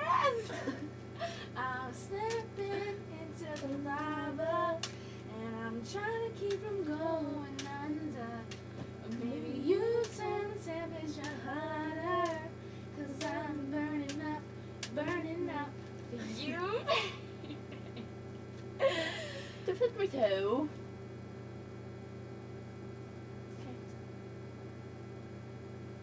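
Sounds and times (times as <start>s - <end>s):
girls singing a rhythmic chant: 1.6s - 4.9s, 9.1s - 15.7s.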